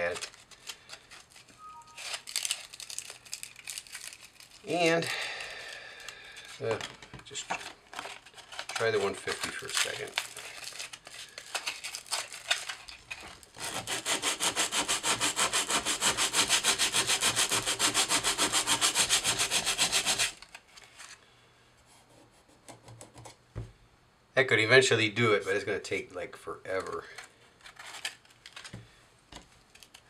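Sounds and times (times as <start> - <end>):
sandpaper rubbing on metal: 13.6 - 20.4.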